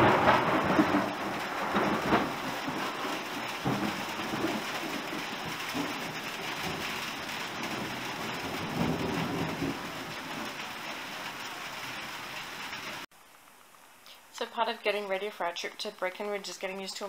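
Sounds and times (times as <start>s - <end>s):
thunder rumbling: 0.0s - 13.1s
steady rain: 0.0s - 17.0s.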